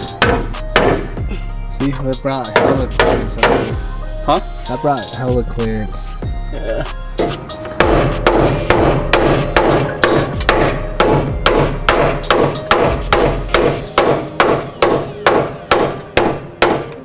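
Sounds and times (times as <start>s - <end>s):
hammer striking metal: 0.0s - 1.2s, 2.5s - 3.8s, 7.2s - 17.0s.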